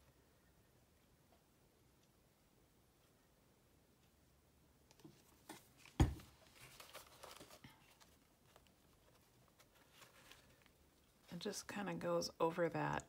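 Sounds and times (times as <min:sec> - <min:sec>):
paper rustling: 0:05.1 - 0:11.4.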